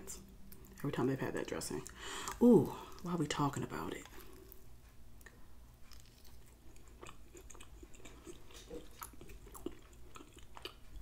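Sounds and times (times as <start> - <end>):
person chewing soft food: 4.0 - 11.0.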